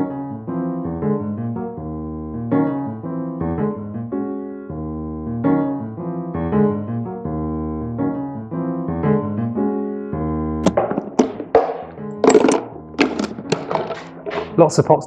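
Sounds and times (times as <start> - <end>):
piano music: 0.0 - 15.0
sharp knock: 10.6 - 14.6.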